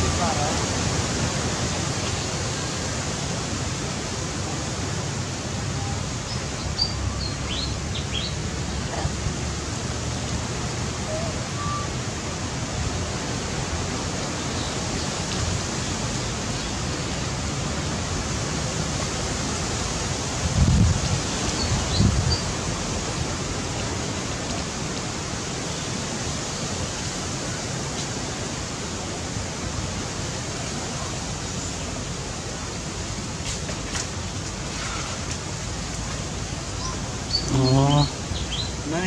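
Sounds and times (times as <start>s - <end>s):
outdoor background hiss: 0.0s - 39.0s
faint high bird chirps: 11.1s - 11.9s.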